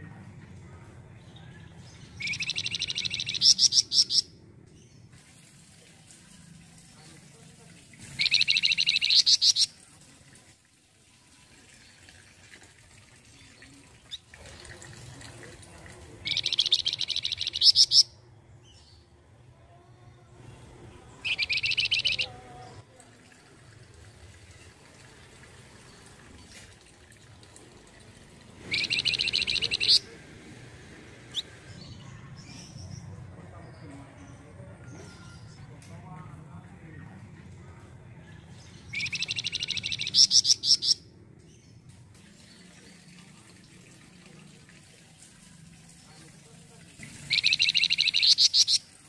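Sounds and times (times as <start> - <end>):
songbird trilling: 2.2 - 4.3, 8.2 - 9.7, 16.2 - 18.1, 21.2 - 22.4, 28.7 - 30.1, 38.9 - 41.0, 47.3 - 48.9.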